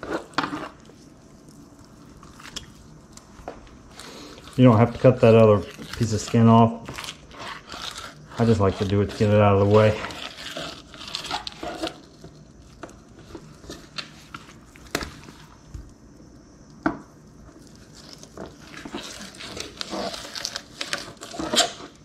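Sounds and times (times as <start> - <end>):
knife slicing and scraping fish: 0.0 - 1.1, 3.9 - 12.4, 17.6 - 22.0.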